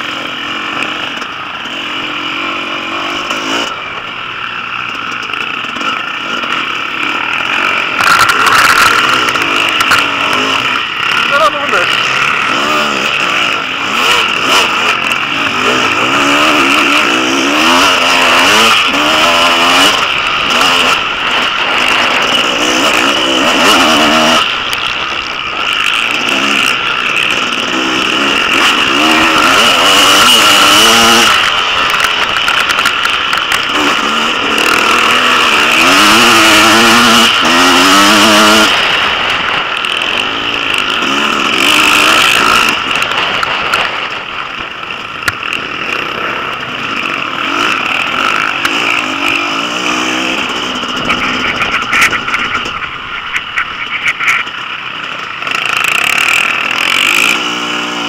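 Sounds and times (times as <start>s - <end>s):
motocross bike engine revving: 0.0s - 58.0s
wind noise: 50.4s - 54.9s.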